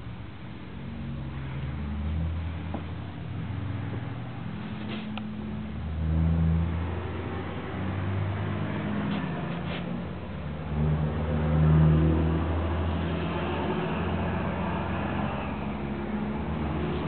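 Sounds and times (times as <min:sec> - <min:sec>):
vehicle engine revving: 0:00.8 - 0:17.0.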